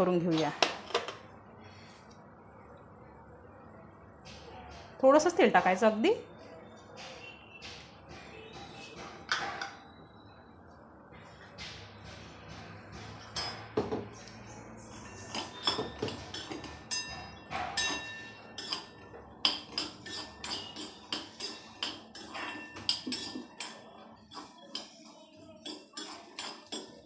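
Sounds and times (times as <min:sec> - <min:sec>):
spoon clinking in metal pan: 0:15.0 - 0:25.0, 0:25.6 - 0:27.0.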